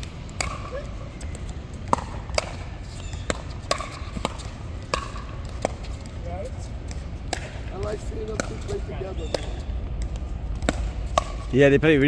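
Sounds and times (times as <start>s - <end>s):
ball bouncing on hard court: 0.0s - 11.5s.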